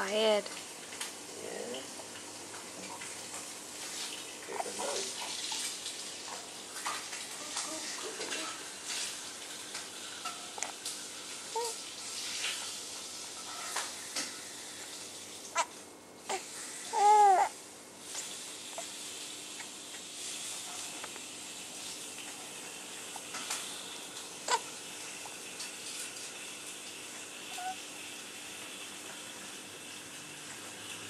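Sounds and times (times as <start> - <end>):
steady background hiss: 0.0 - 31.0
baby whimpering: 11.5 - 11.8, 16.3 - 17.6, 24.4 - 24.7, 27.5 - 27.8.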